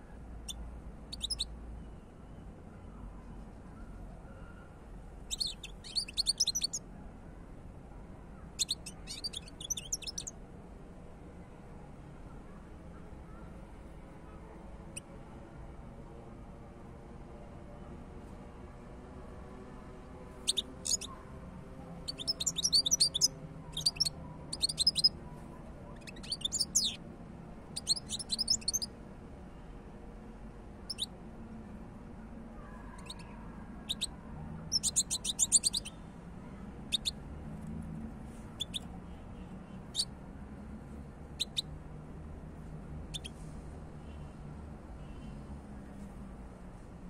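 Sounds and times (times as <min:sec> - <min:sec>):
bird twittering: 0:01.1 - 0:01.5, 0:05.3 - 0:06.8, 0:08.6 - 0:10.3, 0:20.5 - 0:21.2, 0:22.0 - 0:25.2, 0:25.9 - 0:27.0, 0:27.8 - 0:28.9, 0:30.9 - 0:31.1, 0:33.0 - 0:36.0, 0:36.9 - 0:37.1, 0:38.6 - 0:38.9, 0:41.4 - 0:41.7, 0:43.1 - 0:43.3.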